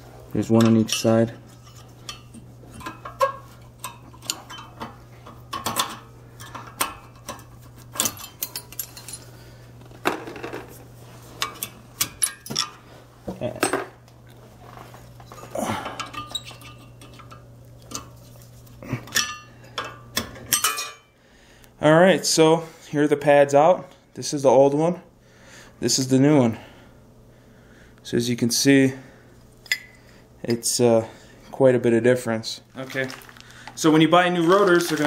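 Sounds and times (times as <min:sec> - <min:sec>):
metal clinking and clicking: 0:05.5 - 0:09.3.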